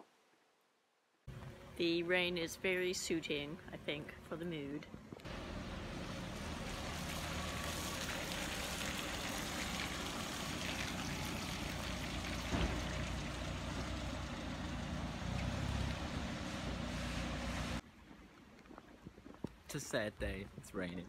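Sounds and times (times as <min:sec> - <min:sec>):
car engine running: 0:05.3 - 0:17.8
rain hiss: 0:05.3 - 0:17.8
thump: 0:12.4 - 0:13.3.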